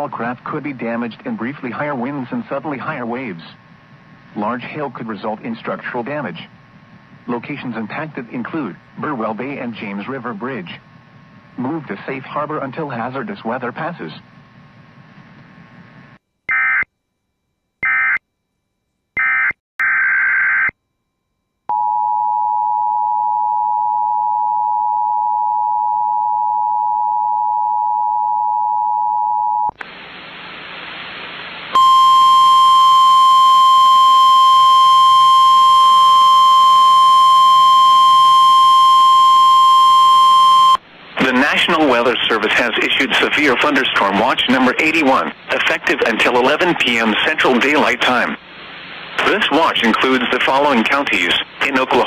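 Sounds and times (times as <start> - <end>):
static: 0.0 - 16.9, 29.7 - 52.0
single-tone warning alarm: 16.5 - 16.9, 17.8 - 18.2, 19.2 - 20.8.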